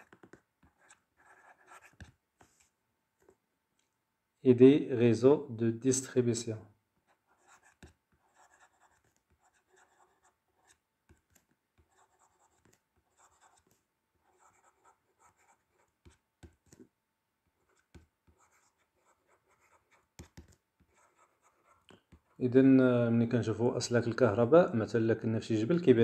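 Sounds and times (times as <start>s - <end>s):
pen scratching on paper: 0.0s - 3.3s, 7.0s - 16.9s, 17.6s - 22.4s.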